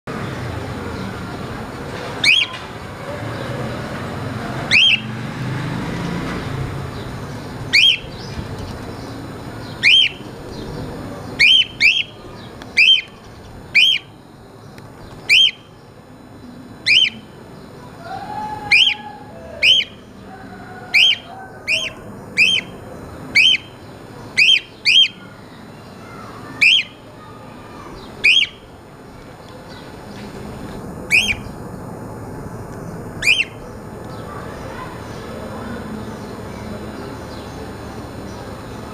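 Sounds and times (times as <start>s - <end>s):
cockatiel whistled call: 2.2s - 2.6s, 4.7s - 5.0s, 7.7s - 8.1s, 9.8s - 10.2s, 12.8s - 13.1s, 15.3s - 15.6s, 16.9s - 17.2s, 18.1s - 20.0s, 20.9s - 22.7s, 23.4s - 23.7s, 24.4s - 25.2s, 26.6s - 27.0s, 28.2s - 28.6s, 31.1s - 31.5s, 33.2s - 33.6s.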